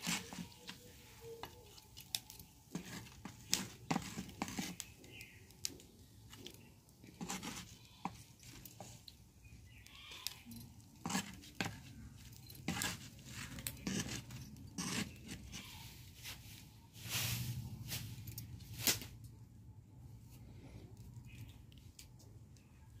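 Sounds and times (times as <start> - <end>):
spatula scraping frying pan: 0.0 - 1.6, 2.7 - 5.4, 7.0 - 9.0, 10.9 - 16.1.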